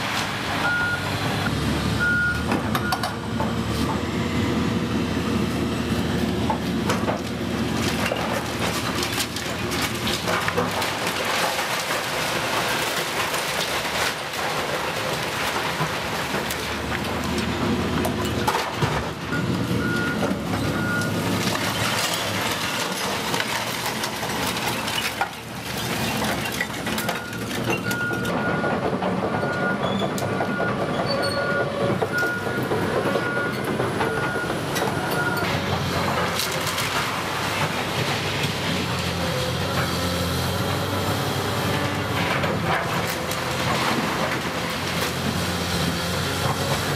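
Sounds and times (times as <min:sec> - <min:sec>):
excavator engine and hydraulics: 0:00.0 - 0:46.9
masonry and timber falling: 0:06.5 - 0:19.3, 0:19.9 - 0:28.3, 0:42.0 - 0:46.9.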